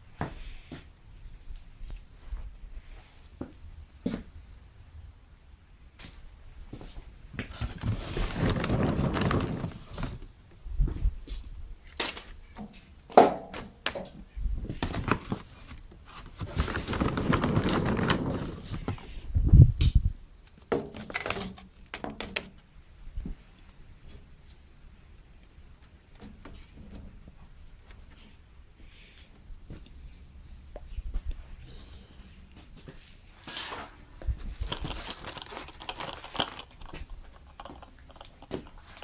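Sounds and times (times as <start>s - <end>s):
paper bag rustling and tearing: 7.5s - 10.3s, 14.7s - 19.0s, 34.5s - 39.0s.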